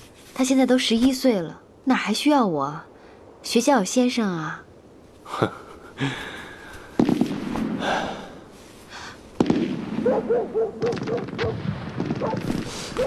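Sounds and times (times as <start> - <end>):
distant gunshots: 7.0 - 8.0, 9.4 - 13.0.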